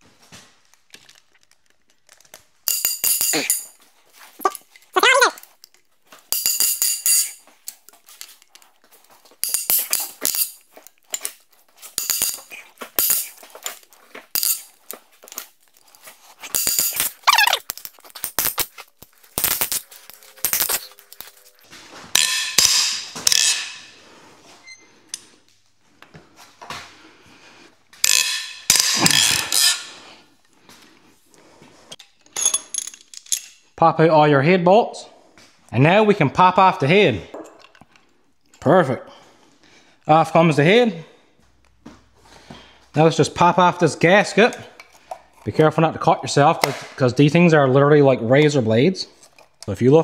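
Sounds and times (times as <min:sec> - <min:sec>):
metallic clinks and cracks: 0:00.6 - 0:24.0, 0:27.9 - 0:30.0, 0:32.0 - 0:33.8.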